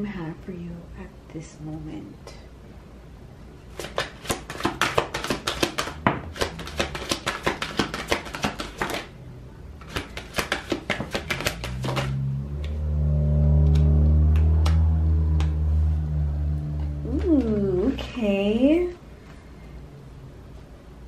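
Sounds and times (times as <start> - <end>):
cards riffle shuffling: 3.7 - 9.1, 9.8 - 12.2
low multi-tone drone: 12.1 - 18.3.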